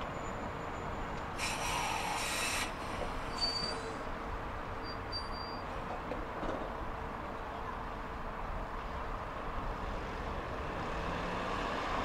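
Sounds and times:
tram air hiss: 1.0 - 4.3
high-pitched wheel squeals: 3.3 - 4.0, 4.8 - 5.7.

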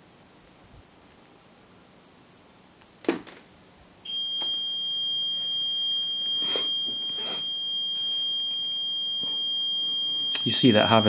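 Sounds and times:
alarm panel high-pitched beep: 4.1 - 11.0.

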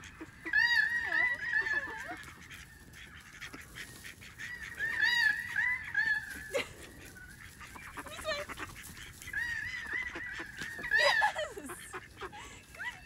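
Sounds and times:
ducks calling: 0.0 - 13.0.

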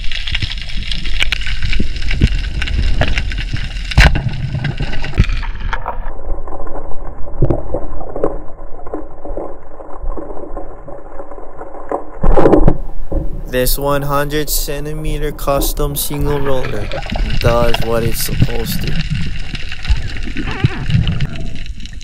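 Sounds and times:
water sloshing and gurgling: 0.0 - 14.4, 15.1 - 22.0
muffled underwater bubbling: 12.2 - 22.0.

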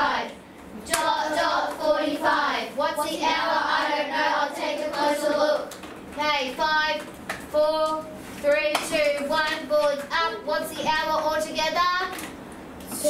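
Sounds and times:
children chanting in unison: 0.0 - 5.7.

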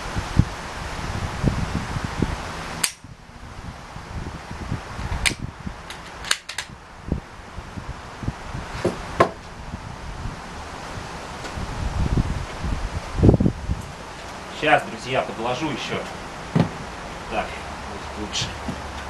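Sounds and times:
wind noise on microphone: 0.0 - 19.0
rifle bolt metallic clicks: 2.8 - 3.0, 5.2 - 6.7.

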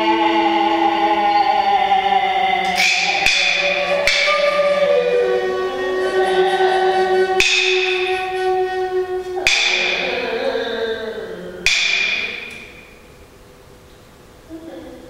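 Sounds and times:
bell-like metal percussion strikes: 0.0 - 5.4, 7.4 - 8.4, 9.4 - 10.6, 11.6 - 13.2.

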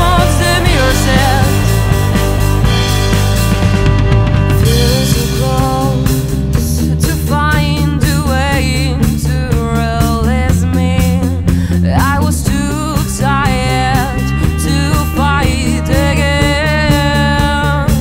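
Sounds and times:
lead melody with vibrato: 0.0 - 6.6
rock band music: 0.0 - 18.0.

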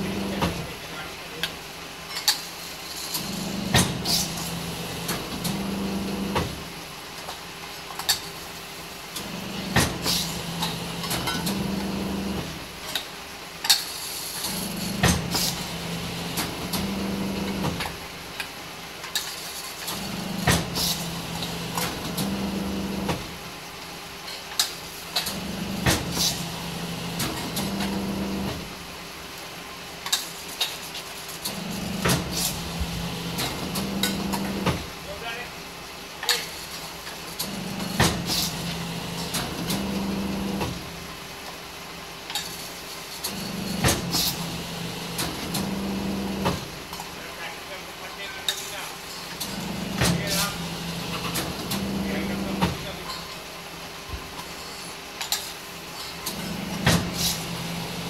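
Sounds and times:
hydraulic press hum: 0.0 - 0.6, 31.5 - 34.9, 56.2 - 58.0.

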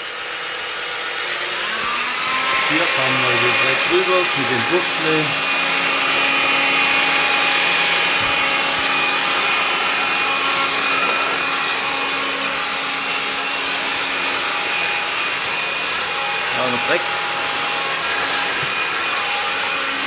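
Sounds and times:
stick vacuum running: 0.0 - 20.0.

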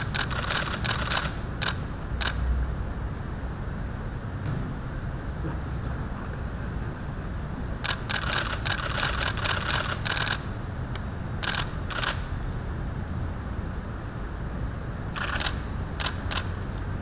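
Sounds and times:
camera shutters firing: 0.0 - 2.4, 7.8 - 10.4, 11.4 - 12.3, 15.2 - 16.5
steady low hum: 0.0 - 17.0.

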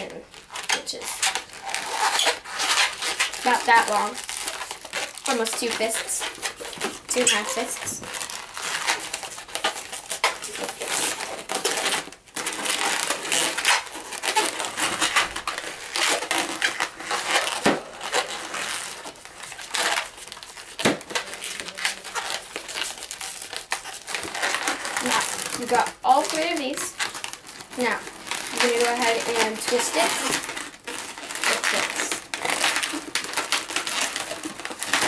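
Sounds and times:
balloons squeaking and rubbing: 0.0 - 35.0.

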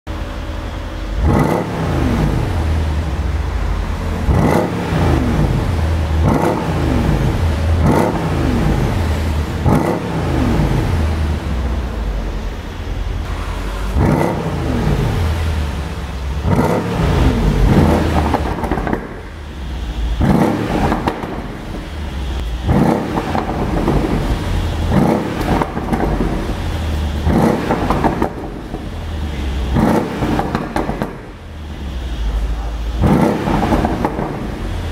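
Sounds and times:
car engine revving: 0.2 - 34.9
exhaust pops and crackles: 17.6 - 19.4, 20.2 - 31.4, 32.3 - 34.9.

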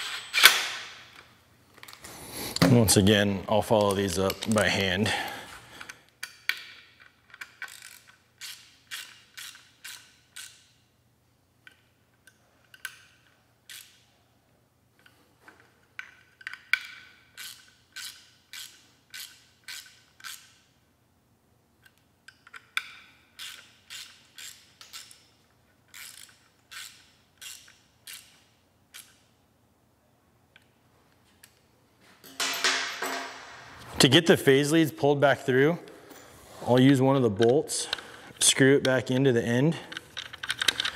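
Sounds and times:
hand ratchet clicking: 5.8 - 10.8, 11.7 - 14.0, 16.0 - 20.7, 21.8 - 29.2, 39.9 - 40.9.

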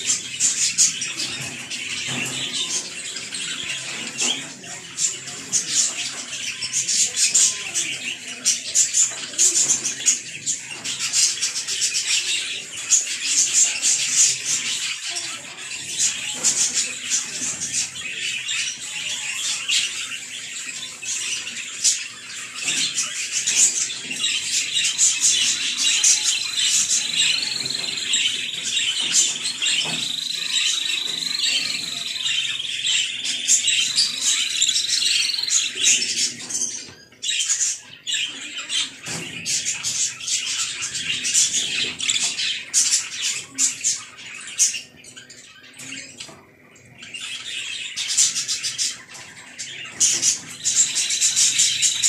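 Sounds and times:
budgerigars chattering: 0.0 - 52.0.

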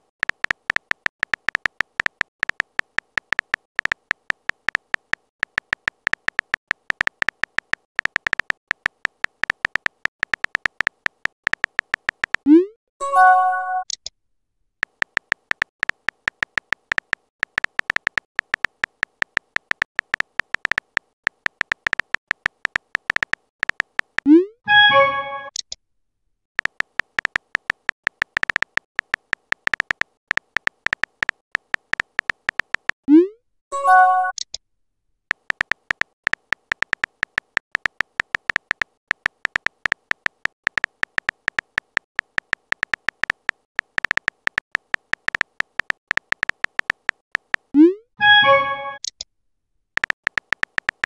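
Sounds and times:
phone keyboard typing clicks: 0.0 - 12.6, 14.8 - 25.7, 26.6 - 33.0, 35.3 - 49.2, 50.0 - 51.0
multi-note message chime: 24.7 - 25.5, 48.2 - 49.0.

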